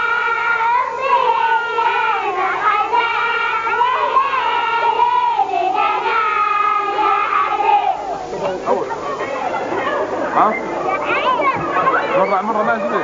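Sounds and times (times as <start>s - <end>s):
children singing together: 0.0s - 8.6s.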